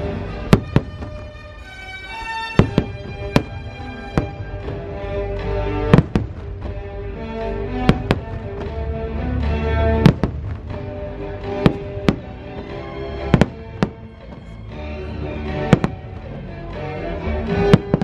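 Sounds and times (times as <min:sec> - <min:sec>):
music with sustained notes: 0:00.0 - 0:18.0
firework shells bursting: 0:02.1 - 0:08.9, 0:09.9 - 0:14.6, 0:15.5 - 0:16.4, 0:17.6 - 0:18.0.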